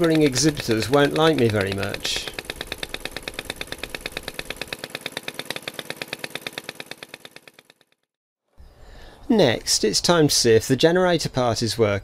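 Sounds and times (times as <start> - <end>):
small four-stroke engine running: 0.0 - 8.2.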